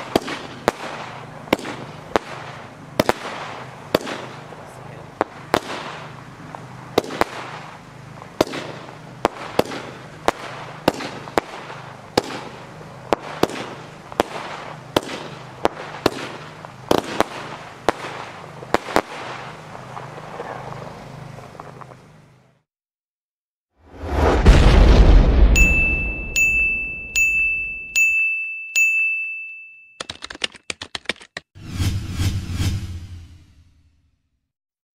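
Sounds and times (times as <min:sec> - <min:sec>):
fireworks bangs and crackle: 0:00.0 - 0:22.4, 0:23.9 - 0:26.1.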